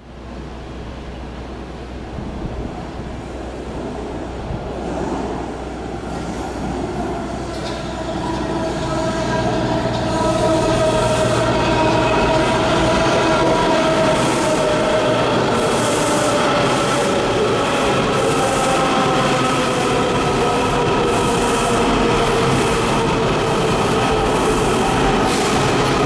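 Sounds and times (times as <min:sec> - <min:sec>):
train rumble: 0:00.0 - 0:26.0
train braking whine: 0:05.7 - 0:26.0.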